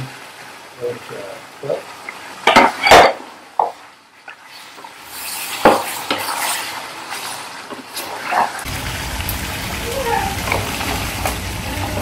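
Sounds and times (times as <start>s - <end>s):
hiss: 5.0s - 7.4s.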